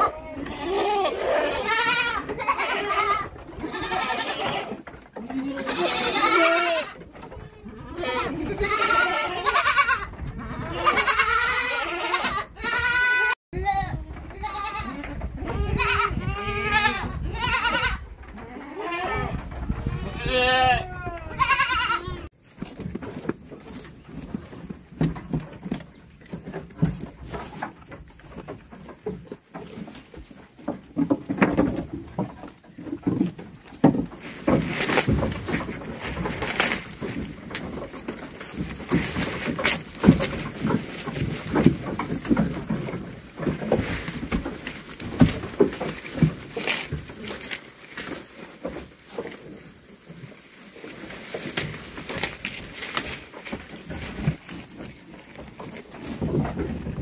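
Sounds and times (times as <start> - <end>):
goats bleating: 0.0 - 22.3.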